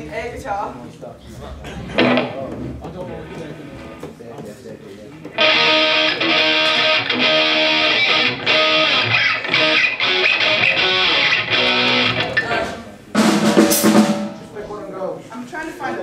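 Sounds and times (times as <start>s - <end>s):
electric guitar strumming chords: 2.0s - 2.4s, 5.4s - 14.6s.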